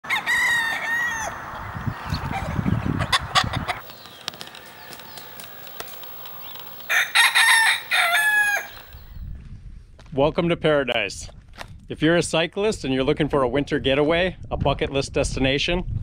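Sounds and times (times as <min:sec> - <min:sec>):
rooster crowing: 0:00.0 - 0:03.8, 0:04.7 - 0:09.1
sharp clicks: 0:03.8 - 0:06.9.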